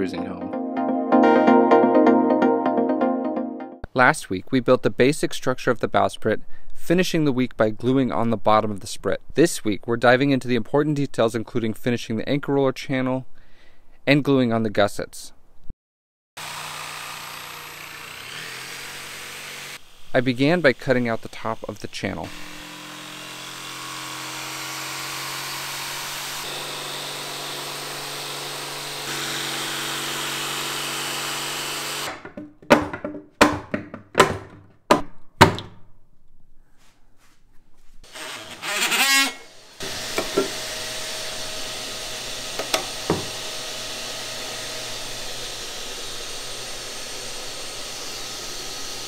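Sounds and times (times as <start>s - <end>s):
jigsaw sawing through fiberglass: 16.4s - 32.2s, 38.0s - 49.0s.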